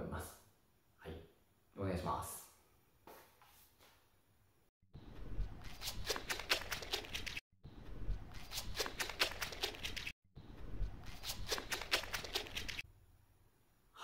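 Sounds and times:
low outdoor rumble: 10.4 - 11.2.

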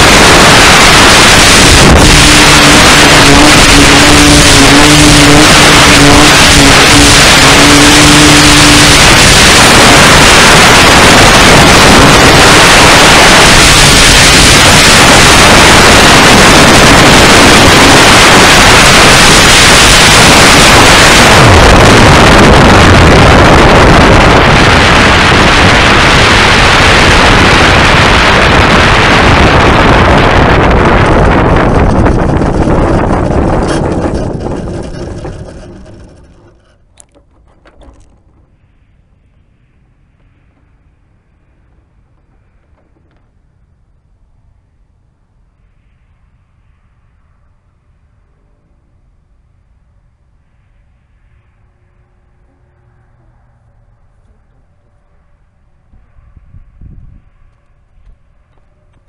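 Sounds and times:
model airplane motor: 0.0 - 38.6
wind rush: 0.0 - 44.7, 45.4 - 59.0
steady tone: 0.0 - 59.0.

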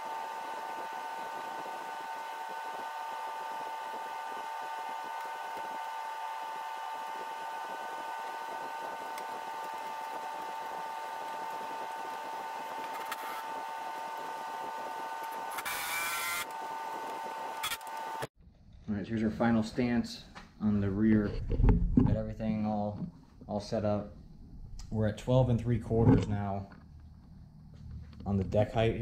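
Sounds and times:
cordless power tool burst: 0.0 - 18.3
machine hum: 0.0 - 18.3.

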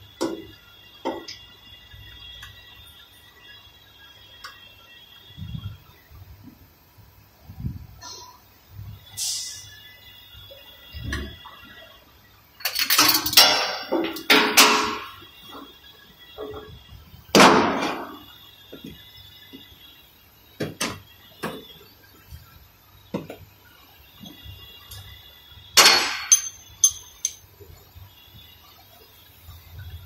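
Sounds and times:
hammer striking metal: 25.8 - 27.4.

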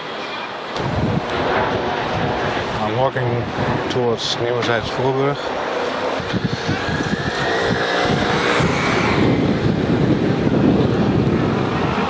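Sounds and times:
traffic noise: 0.0 - 12.0
wind rumbling on microphone: 0.7 - 12.0
motor scooters passing: 5.6 - 12.0.

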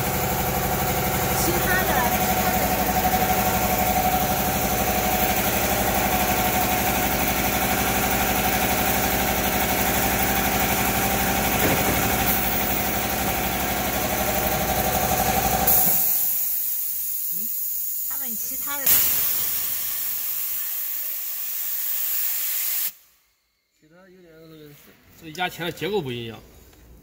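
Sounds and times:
welding machine pulsing hum: 0.0 - 23.0
pneumatic air hiss: 11.5 - 13.2, 15.7 - 23.2.

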